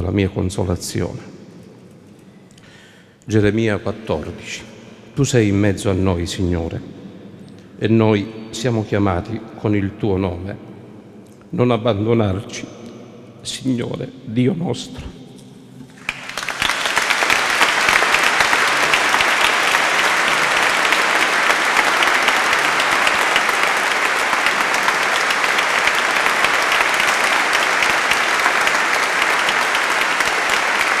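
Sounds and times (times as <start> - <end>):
congregation applauding: 15.9 - 31.0.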